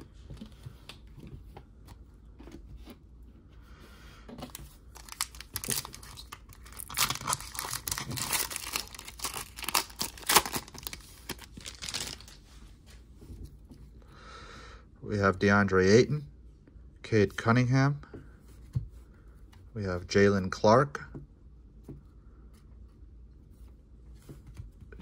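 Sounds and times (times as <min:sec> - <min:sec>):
card handling: 0:04.5 - 0:12.4
foil wrapper crinkling: 0:04.9 - 0:12.4.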